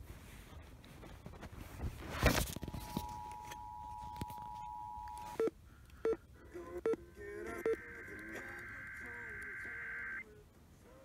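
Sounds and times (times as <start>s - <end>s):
electronic beeps: 2.8s - 6.2s, 6.8s - 10.2s
buzzing two-tone data burst: 7.5s - 10.2s
radio static burst: 7.5s - 10.2s.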